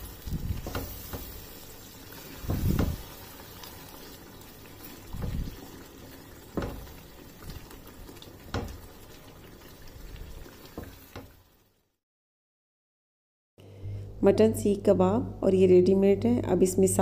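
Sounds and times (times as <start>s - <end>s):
gravy bubbling in a pot: 0.0s - 11.8s
spatula knocking on a pan: 6.6s - 6.9s.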